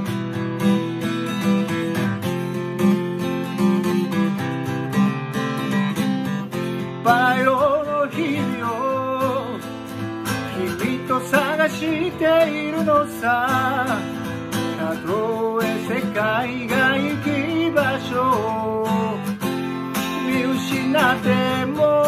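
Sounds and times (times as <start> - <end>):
acoustic guitar strumming chords: 0.0 - 22.0
man singing: 6.7 - 22.0.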